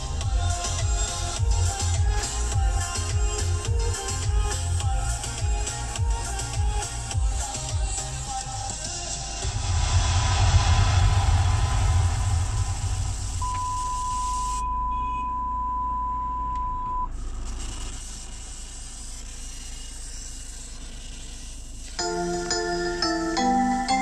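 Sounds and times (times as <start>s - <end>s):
loud low rumble: 9.4s - 14.7s
steady electronic beep: 13.4s - 17.1s, 22.0s - 24.0s
chiming notes: 22.0s - 24.0s.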